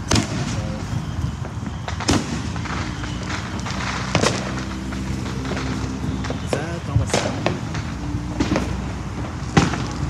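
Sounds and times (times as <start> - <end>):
fireworks bangs: 0.0 - 10.0
fireworks crackling: 0.0 - 10.0.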